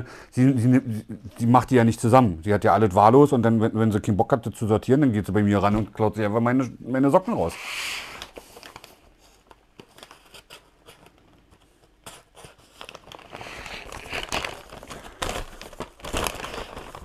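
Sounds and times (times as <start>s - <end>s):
paper bag crinkling and rustling: 8.2s - 17.0s.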